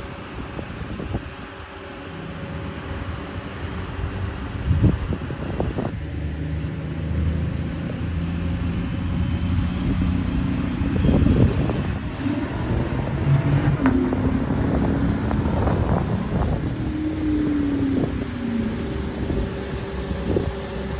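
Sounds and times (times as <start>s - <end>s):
car engine running: 0.0s - 20.9s.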